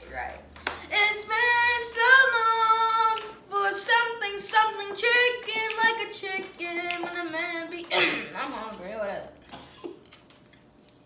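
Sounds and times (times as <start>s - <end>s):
girl singing unaccompanied: 0.8s - 8.9s.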